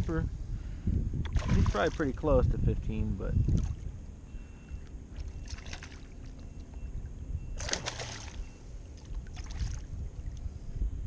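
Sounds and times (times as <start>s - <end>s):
wind rumble on microphone: 0.0s - 11.0s
fish splashing at surface: 1.3s - 2.0s, 5.2s - 6.4s, 7.6s - 8.4s, 9.0s - 9.9s.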